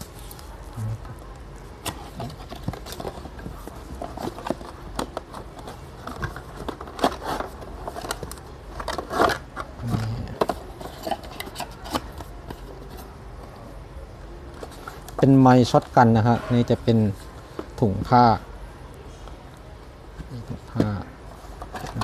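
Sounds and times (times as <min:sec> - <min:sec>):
packaging rustling and clicking: 0:01.8 - 0:12.7.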